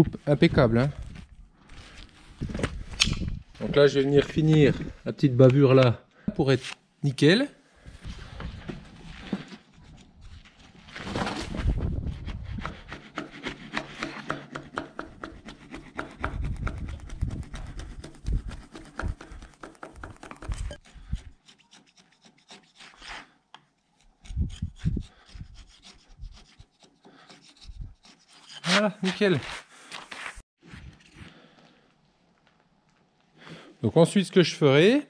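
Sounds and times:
chisel scraping wood: 12.4s - 30.4s.

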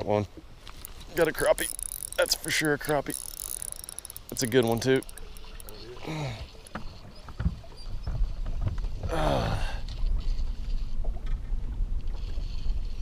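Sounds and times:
water slapping boat hull: 0.3s - 9.2s.

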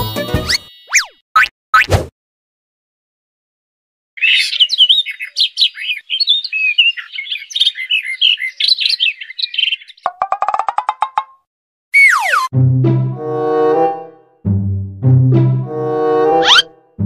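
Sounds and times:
birds chirping and twittering: 4.2s - 10.4s.

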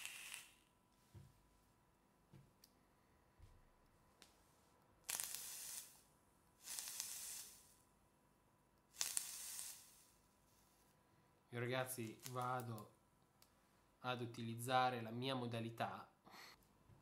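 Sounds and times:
breathy vaping hisses: 0.0s - 0.6s, 5.1s - 7.8s, 8.9s - 10.2s.

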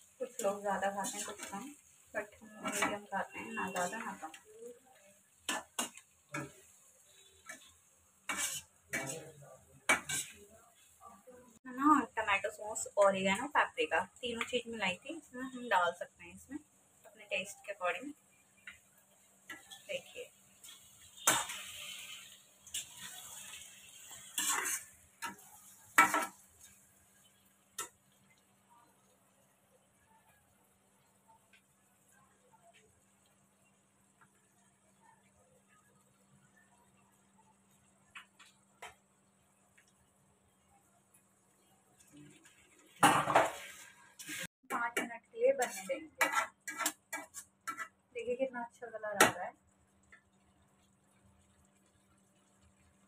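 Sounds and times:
faint frying sizzle: 0.0s - 53.0s
metal spatula scraping pan: 0.2s - 4.4s, 5.5s - 10.5s, 19.5s - 26.9s, 42.4s - 44.6s, 45.4s - 48.0s.

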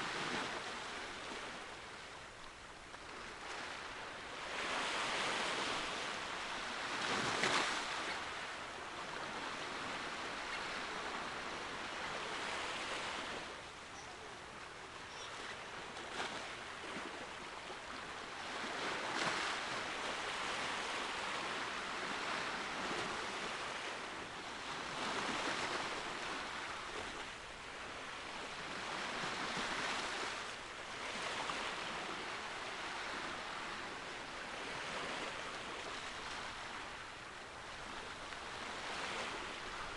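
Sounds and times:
wind: 0.0s - 39.9s
sea waves washing in: 15.5s - 39.9s.

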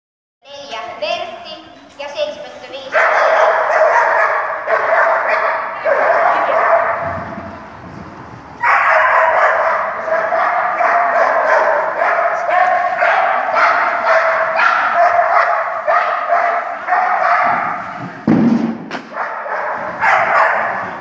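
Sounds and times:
dog barking and yipping: 2.9s - 7.2s, 8.6s - 18.0s, 19.1s - 21.0s.

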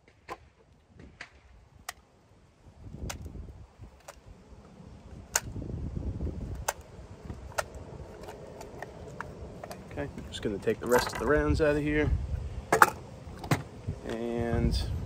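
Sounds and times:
rifle clicks and ticks: 4.0s - 4.3s, 5.3s - 5.6s, 6.5s - 9.9s.

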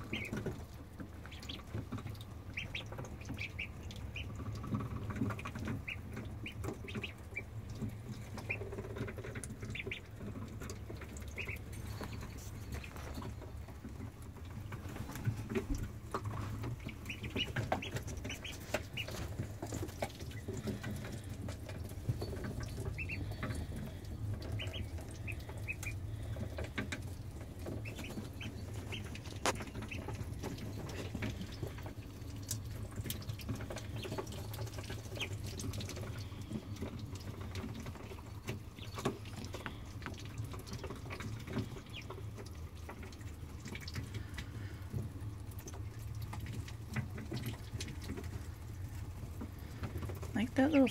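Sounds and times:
ducklings peeping: 0.0s - 50.9s.

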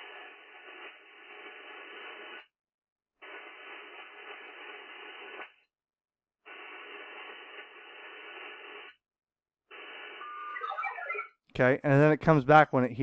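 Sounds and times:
hissy digital data bursts: 3.2s - 5.5s, 6.5s - 9.0s, 9.7s - 11.3s
short beeping tones: 10.2s - 11.4s.

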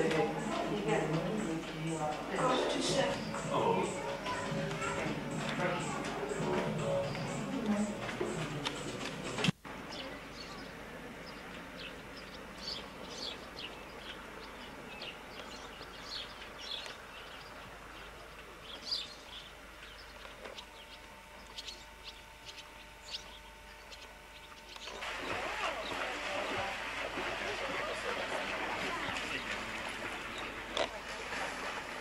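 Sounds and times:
small birds chirping: 9.8s - 27.0s.

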